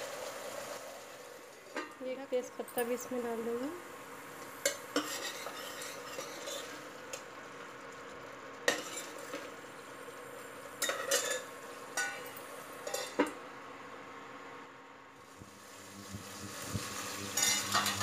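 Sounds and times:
low sizzle: 0.0 - 18.0
ladle stirring and scraping a pot: 4.6 - 6.9, 8.7 - 9.5, 12.8 - 13.3, 17.3 - 18.0.

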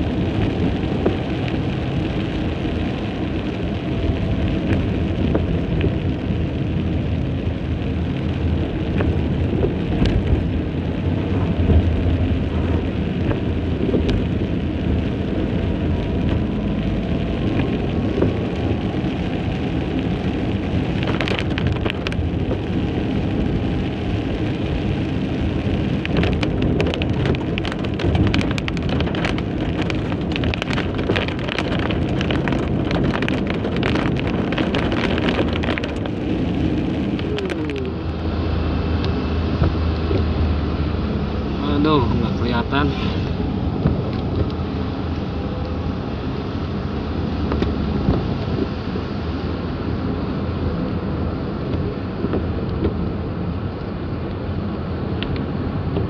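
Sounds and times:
sharp raindrop hits: 0.0 - 41.0
car and tyres rumbling on wet road: 0.0 - 56.0
heavy rain drumming on car roof: 0.0 - 56.0.

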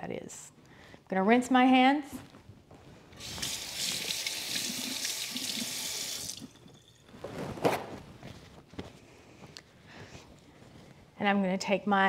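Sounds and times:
tap water running: 3.2 - 6.5.

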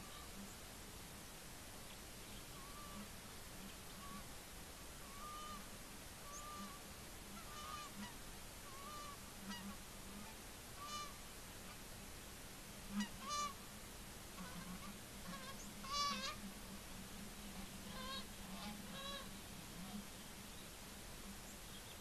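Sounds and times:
geese honking: 2.6 - 3.1, 5.0 - 5.6, 6.2 - 6.8, 7.4 - 11.2, 12.9 - 13.6, 14.4 - 16.5, 17.5 - 20.0.

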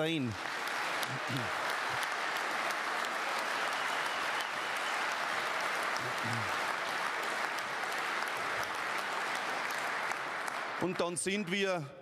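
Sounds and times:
large audience applauding: 0.0 - 11.9.

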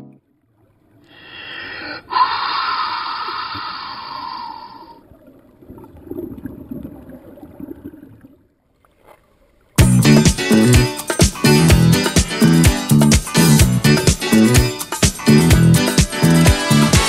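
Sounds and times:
person humming underwater: 1.7 - 5.0
bubbles gurgling: 3.3 - 8.5.

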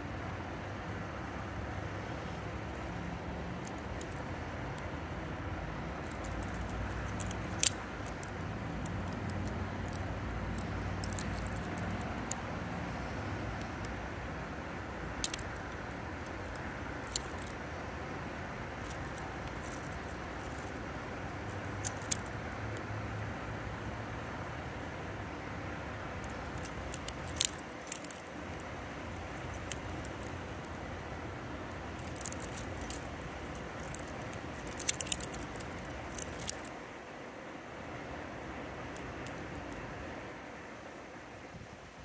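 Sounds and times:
butterfly knife metallic clicks: 6.0 - 12.5, 15.1 - 17.6, 26.3 - 36.7.

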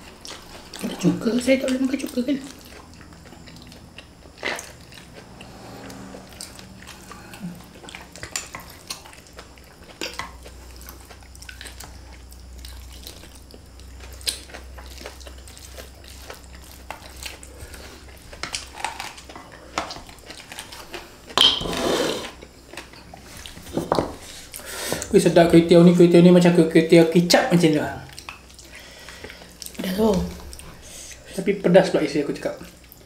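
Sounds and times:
people chewing: 0.0 - 25.4, 26.4 - 31.5, 32.4 - 33.0
dishes clattering: 21.4 - 21.8.

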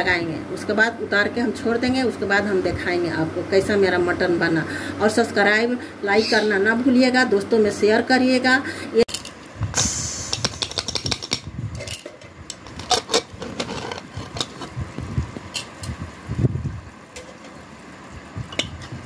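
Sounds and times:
metal ladle scraping pot: 11.8 - 14.8.

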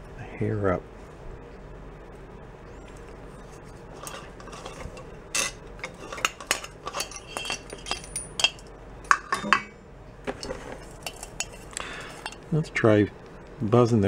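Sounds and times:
metal clinks and taps: 4.0 - 9.8, 10.4 - 12.5.

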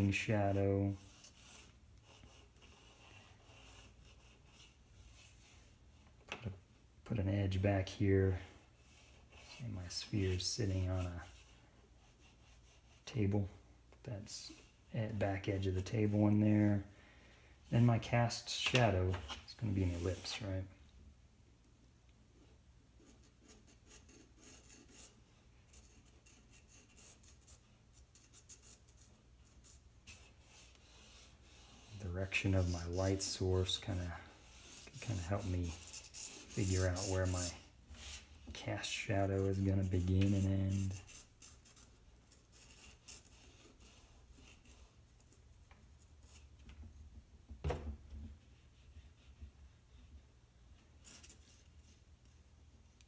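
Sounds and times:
pencil scratching on paper: 0.8 - 5.7, 8.3 - 13.1, 23.0 - 46.6, 48.4 - 50.3, 51.0 - 53.0.

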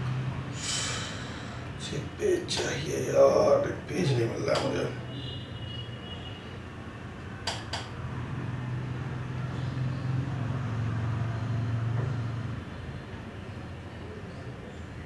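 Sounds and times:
low engine-like rumble: 0.0 - 5.0.

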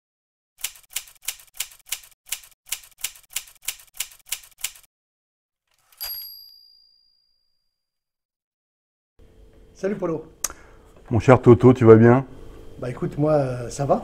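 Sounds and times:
typewriter keystrokes: 0.6 - 4.9
typewriter bell ding: 5.9 - 7.6.

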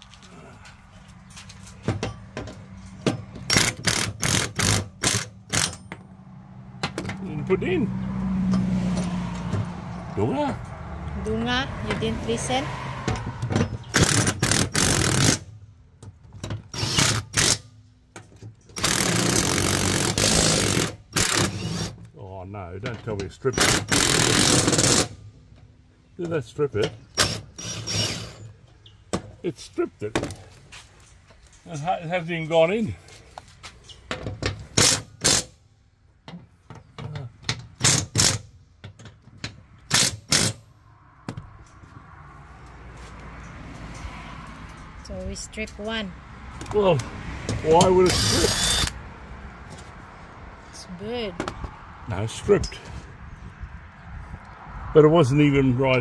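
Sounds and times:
impact driver bursts: 13.9 - 15.4, 16.7 - 17.6, 18.8 - 22.0, 23.6 - 25.2, 27.2 - 28.4, 37.8 - 38.4, 48.0 - 49.0
cordless drill running in bursts: 48.1 - 48.9.

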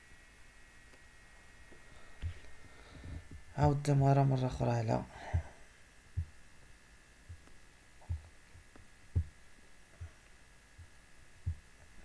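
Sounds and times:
faint steady hum: 0.0 - 12.0
dull low thumps: 5.2 - 6.5, 7.2 - 8.4, 9.1 - 9.4, 10.0 - 11.7.

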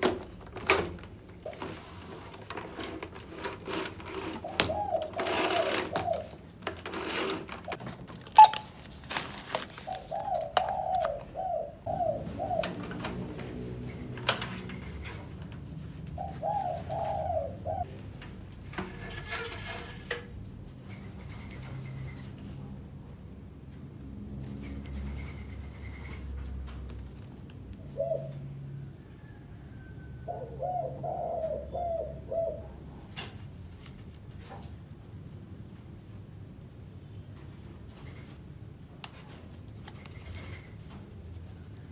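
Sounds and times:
handling clicks and knocks: 0.0 - 11.3
dove cooing: 1.4 - 8.8, 9.7 - 18.0, 27.8 - 33.1.

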